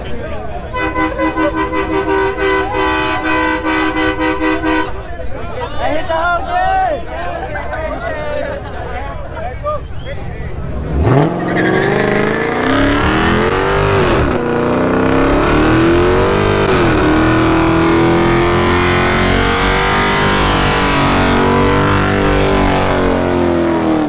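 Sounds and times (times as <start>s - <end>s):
car engine revving hard: 10.6s - 24.0s.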